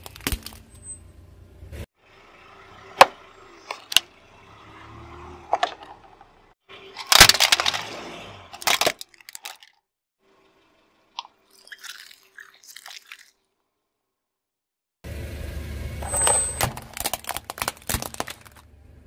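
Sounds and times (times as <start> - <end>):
tyre crushing plastic toys: 0.0 - 0.7, 6.9 - 9.8, 16.1 - 18.7.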